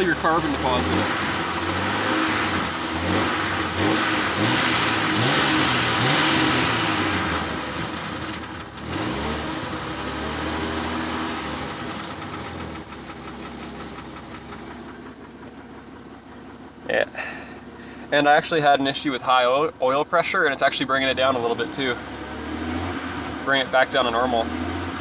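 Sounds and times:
car engine idling unevenly: 0.0s - 9.0s, 9.6s - 22.3s.

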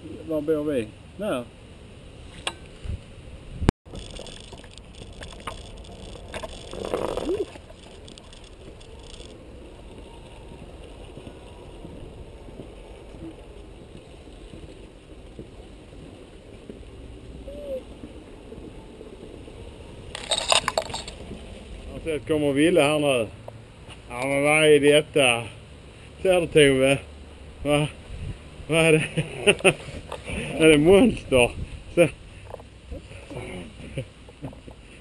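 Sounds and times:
wind rumble: 1.0s - 22.8s, 27.1s - 33.1s.

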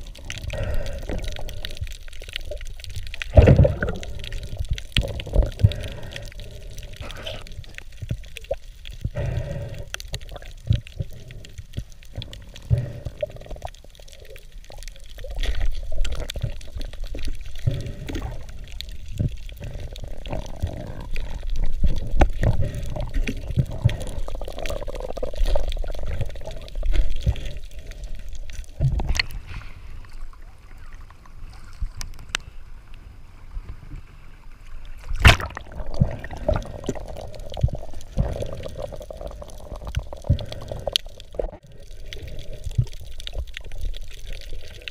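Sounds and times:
muffled water movement: 0.0s - 44.9s.

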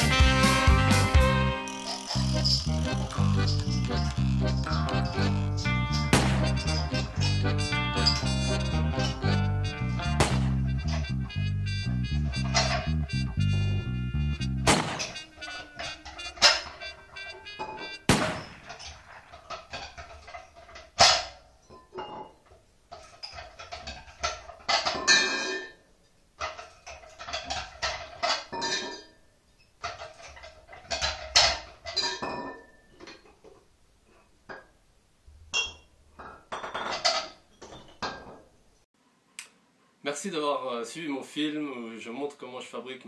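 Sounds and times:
glass bottles clinking: 1.6s - 11.2s, 12.0s - 13.9s, 15.0s - 33.5s, 35.5s - 38.5s
bottles knocking on tile floor: 35.5s - 38.4s.

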